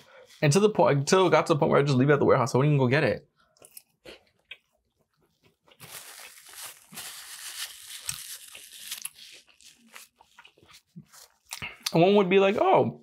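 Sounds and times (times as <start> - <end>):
food packaging crinkling: 5.2 - 11.5.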